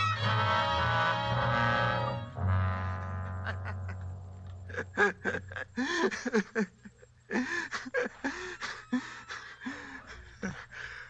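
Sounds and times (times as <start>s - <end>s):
man laughing breathily: 3.4s - 11.0s.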